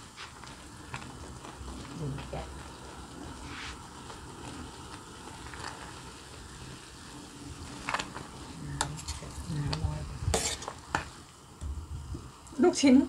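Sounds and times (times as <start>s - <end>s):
steady low hiss: 0.0s - 13.0s
metal ladle scraping a pot: 7.6s - 9.5s, 10.2s - 11.2s.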